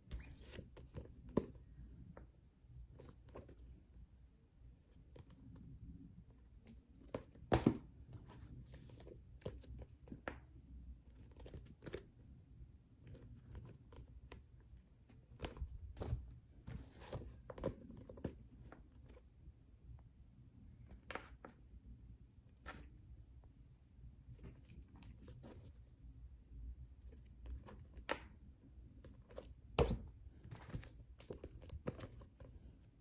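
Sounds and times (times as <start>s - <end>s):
books tapping and rustling: 7.1s - 10.5s, 15.2s - 19.2s, 29.1s - 32.5s.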